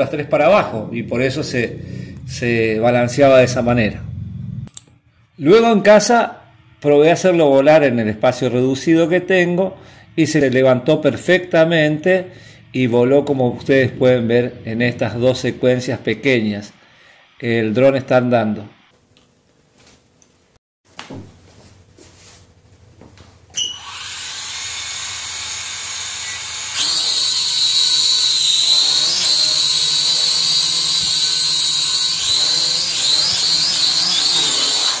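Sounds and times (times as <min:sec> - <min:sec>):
toy drone propellers whining: 0:23.6 - 0:35.0.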